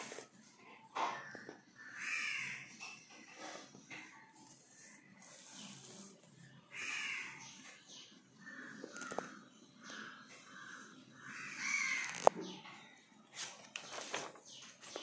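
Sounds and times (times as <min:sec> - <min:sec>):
crow cawing: 0:01.8 - 0:02.8, 0:06.7 - 0:07.5, 0:08.4 - 0:09.4, 0:10.0 - 0:12.3.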